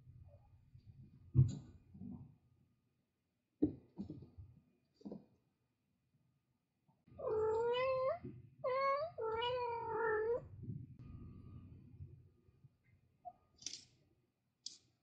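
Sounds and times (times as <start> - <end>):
cat meowing: 7.2 - 10.4.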